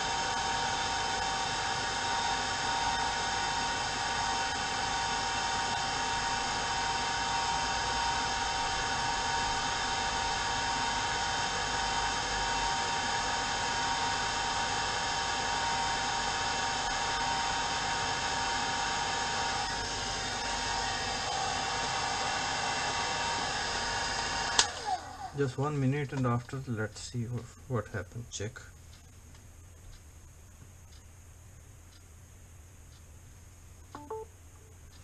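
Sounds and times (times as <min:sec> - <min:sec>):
hair dryer running: 0:00.0 - 0:25.7.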